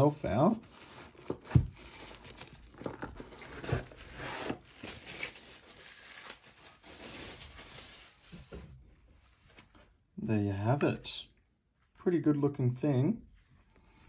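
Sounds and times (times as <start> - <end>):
plastic wrapping crinkling: 0.5 - 8.5.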